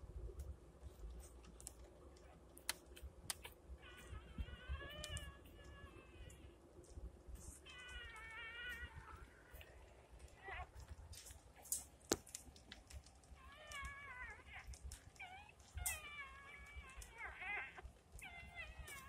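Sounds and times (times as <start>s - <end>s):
puppies squealing: 3.8s - 6.5s, 7.6s - 9.7s, 13.4s - 19.0s.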